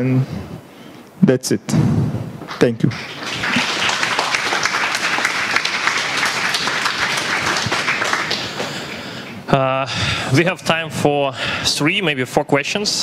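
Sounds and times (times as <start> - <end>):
audience applauding: 2.7 - 9.4.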